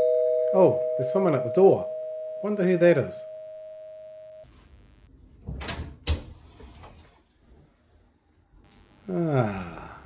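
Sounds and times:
doorbell tone: 0.0s - 4.4s.

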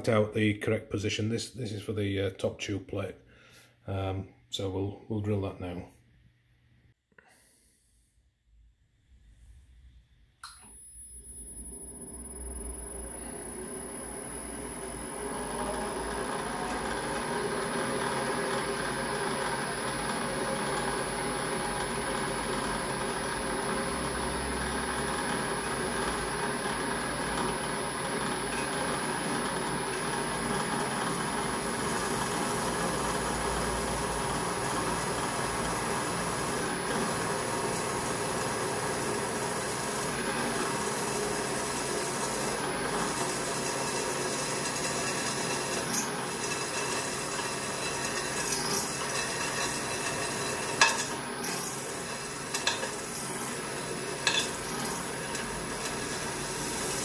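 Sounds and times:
bench drill running: 11.0s - 57.0s
drill bit scratching copper: 44.6s - 57.0s.

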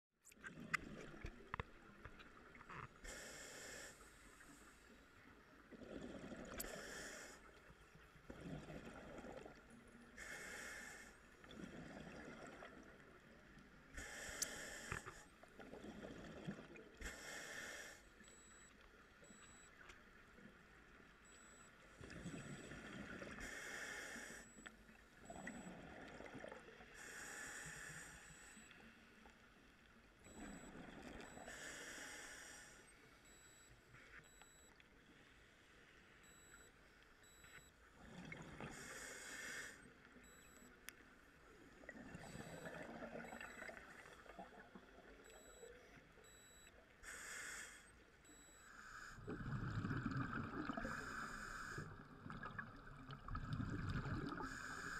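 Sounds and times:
diver breathing through regulator: 3.0s - 4.6s, 5.9s - 7.5s, 10.2s - 11.2s, 14.0s - 15.3s, 17.0s - 18.6s, 22.3s - 24.6s, 27.0s - 28.7s, 31.3s - 33.5s, 38.4s - 39.9s, 47.0s - 50.0s, 50.6s - 52.1s, 54.3s - 54.9s
exhaled bubbles rumbling: 49.3s - 51.0s, 52.1s - 54.5s.

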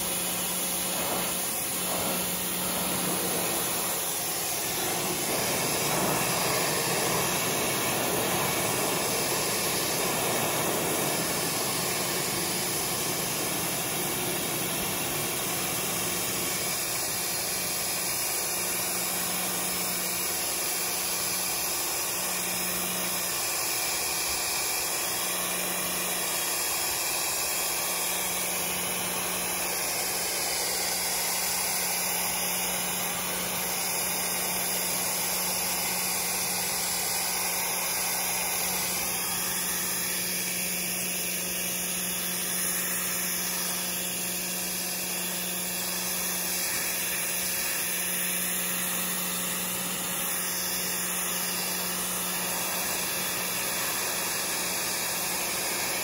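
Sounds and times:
motor hum: 0.0s - 20.3s
pressure washer jet hissing: 0.0s - 22.2s, 26.1s - 56.0s.

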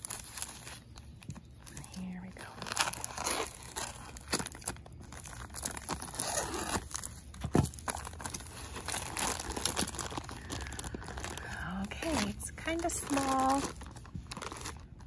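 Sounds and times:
plastic bag rustling: 0.0s - 15.0s
plastic wrap crinkling: 0.0s - 15.0s
scissors cutting packaging: 2.7s - 10.9s.

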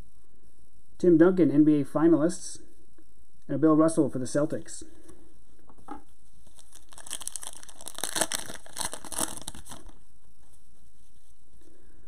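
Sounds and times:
foil wrapper crinkling and tearing: 6.4s - 10.0s.

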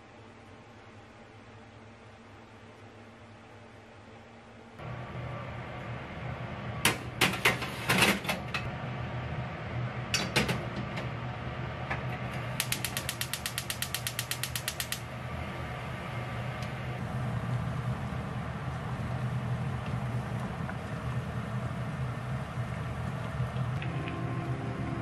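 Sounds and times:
steady hum: 0.0s - 25.0s
gas stove igniter clicking: 12.3s - 15.1s.

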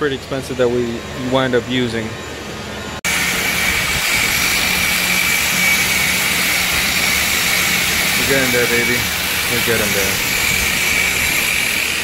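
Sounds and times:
power sanders on metal: 3.1s - 12.0s.

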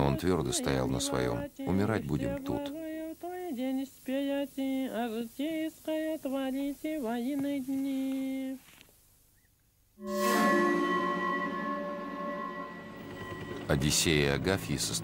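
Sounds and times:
sustained ringing music chord: 10.0s - 15.0s.

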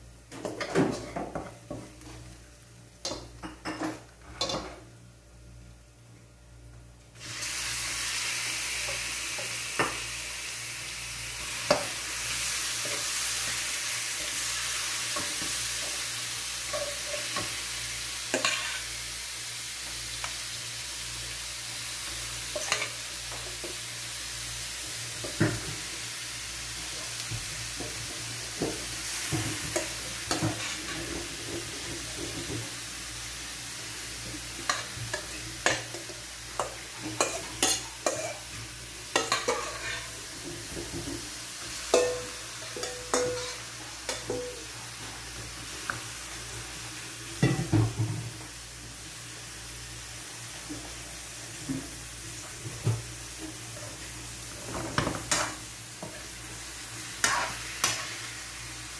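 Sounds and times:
pork sizzling in oil: 7.1s - 58.9s
metal spoon scraping wok: 18.4s - 18.9s, 39.1s - 40.2s.

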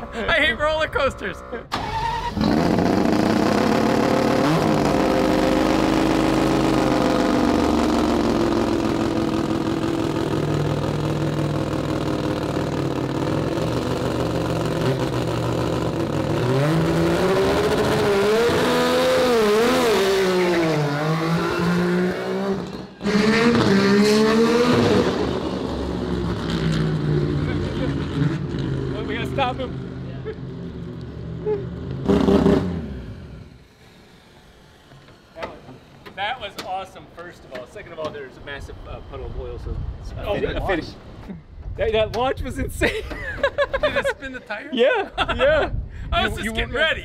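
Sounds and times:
rotary car engine accelerating: 1.7s - 36.0s.

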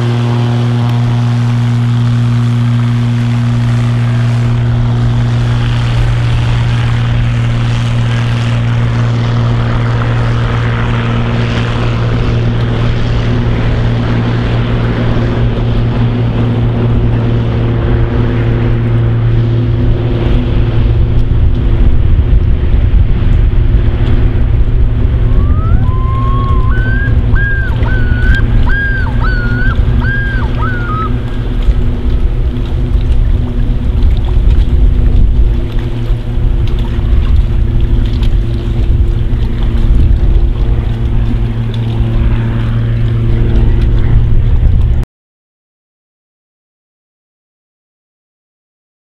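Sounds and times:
propeller plane engine drone: 0.0s - 45.0s
high wavering call: 25.3s - 31.4s.

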